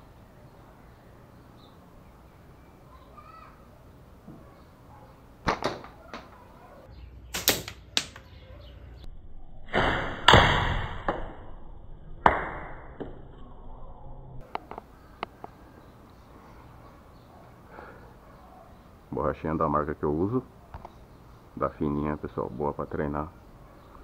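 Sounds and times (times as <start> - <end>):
ball striking target: 9.7 - 11.5, 12.2 - 13.3.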